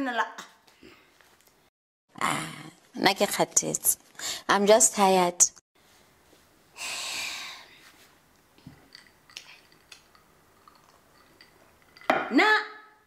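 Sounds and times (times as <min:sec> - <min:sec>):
breathy exhale: 0:06.8 - 0:07.8.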